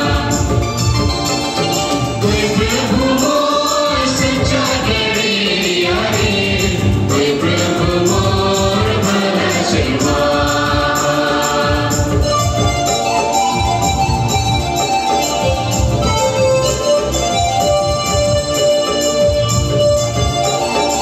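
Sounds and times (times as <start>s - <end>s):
group singing devotional song: 0.0s - 12.4s
instrumental music: 0.0s - 21.0s
steady drum beat: 0.0s - 21.0s.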